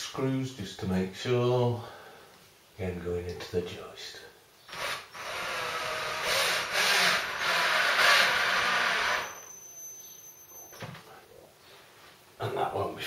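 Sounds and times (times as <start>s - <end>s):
cordless drill driving a screw: 4.7s - 9.4s.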